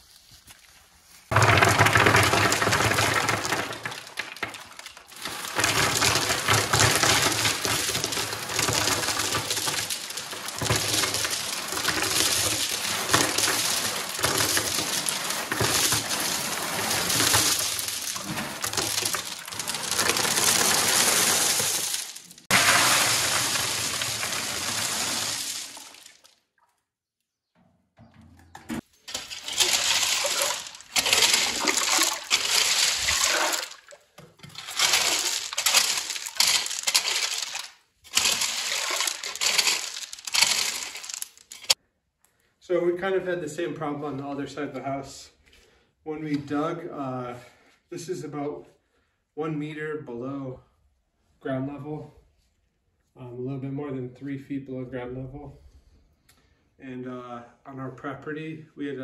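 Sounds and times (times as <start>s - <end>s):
pebbles clattering from metal wheelbarrow: 1.3s - 26.3s, 28.8s - 41.8s
rake scraping through gravel: 5.1s - 26.0s, 29.1s - 33.8s, 34.4s - 41.8s.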